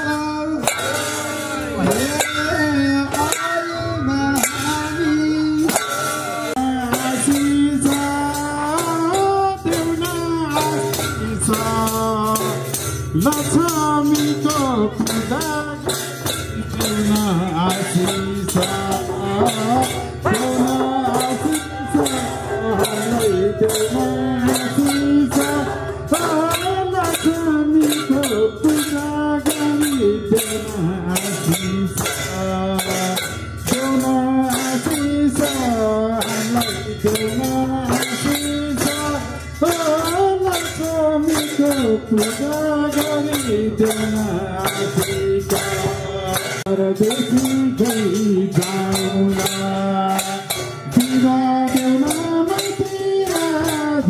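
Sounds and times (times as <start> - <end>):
hand drums beating: 0.0 - 54.0
voices singing a folk song: 0.0 - 54.0.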